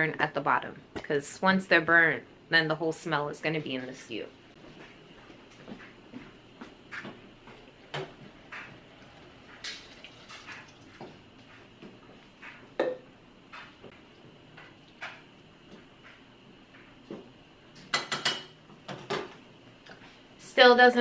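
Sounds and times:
water pouring: 8.9 - 11.1.

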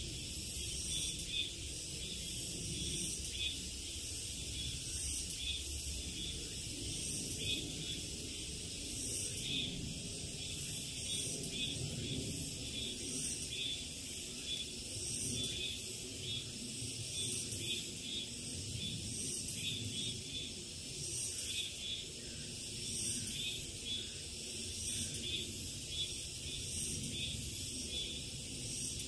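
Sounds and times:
insects buzzing shrilly: 0.0 - 29.0.

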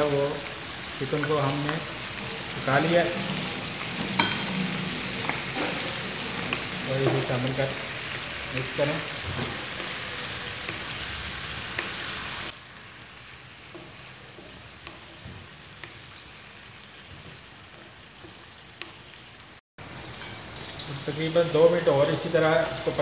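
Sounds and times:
chicken sizzling in a wok: 0.0 - 23.0
wooden spatula scraping and tapping: 11.6 - 12.4, 13.6 - 16.2.

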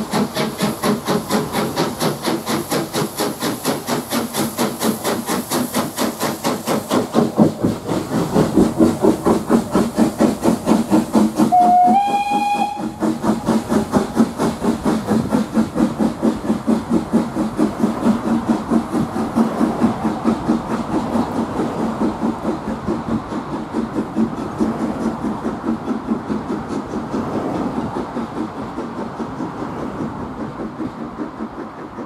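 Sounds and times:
steam locomotive exhaust beats: 0.0 - 32.0
steam whistle: 11.4 - 13.0.

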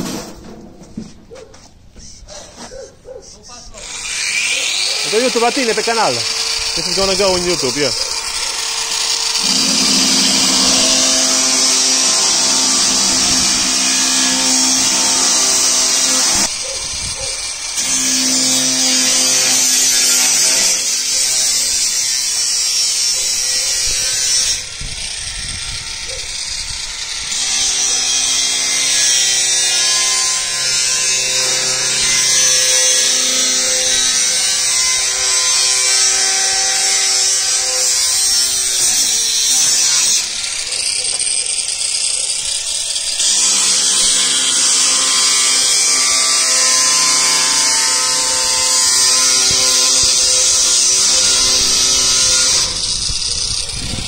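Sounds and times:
angle grinder grinding steel: 3.8 - 54.0.

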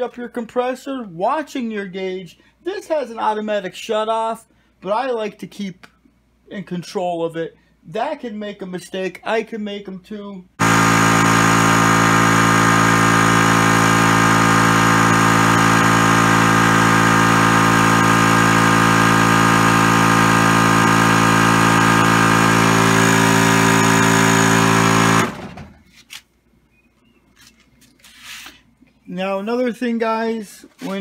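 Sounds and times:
air compressor running: 10.6 - 25.8.

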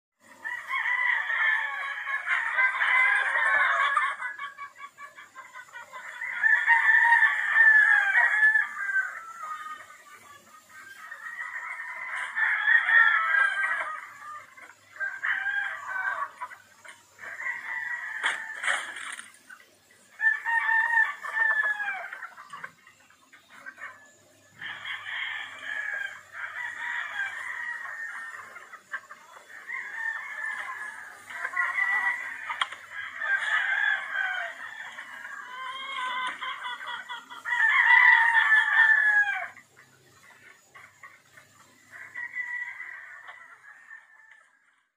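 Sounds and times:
roosters crowing: 0.2 - 19.4, 20.1 - 22.8, 23.6 - 44.9
hens clucking: 0.2 - 44.9
rooster crowing: 0.4 - 3.9, 20.2 - 22.1, 29.6 - 36.4, 37.5 - 39.6.

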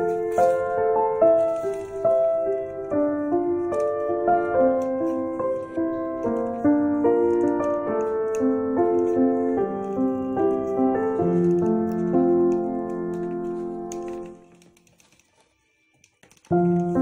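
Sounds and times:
background piano music: 0.0 - 17.0.

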